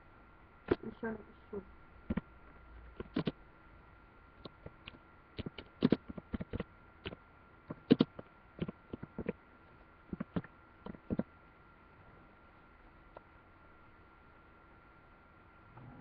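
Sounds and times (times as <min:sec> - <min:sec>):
typing on computer keyboard: 0:03.0 - 0:03.4, 0:04.4 - 0:09.4.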